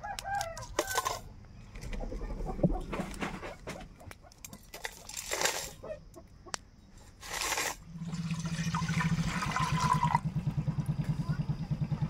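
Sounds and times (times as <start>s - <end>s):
water pouring into steel bowl: 7.3s - 10.2s
low pulsing engine: 7.8s - 12.0s.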